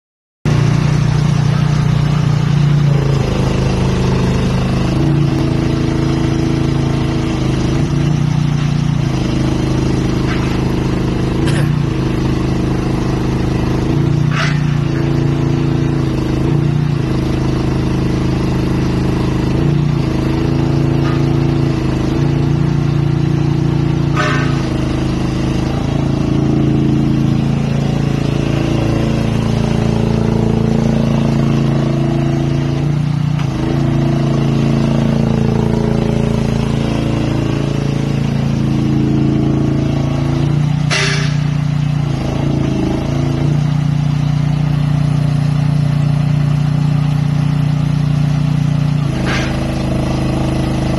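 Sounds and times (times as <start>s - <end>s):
excavator engine running: 0.5s - 50.9s
sharp high squeaks or clanks: 14.2s - 15.2s, 24.0s - 24.8s, 40.9s - 41.7s, 49.1s - 49.8s.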